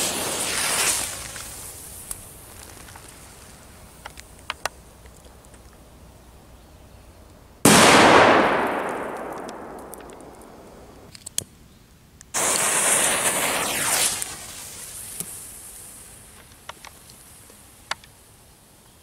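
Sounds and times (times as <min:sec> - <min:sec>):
hissing firework blast: 0:00.0 - 0:03.3, 0:12.4 - 0:16.4
firecracker bang: 0:07.7 - 0:11.1, 0:12.4 - 0:14.6.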